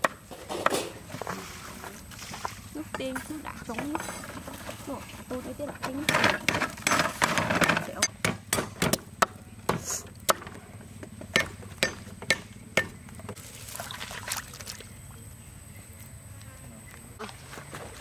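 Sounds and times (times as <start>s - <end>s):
cleaver chopping on wooden block: 11.2s - 13.0s
pieces splashing into water: 13.4s - 14.9s.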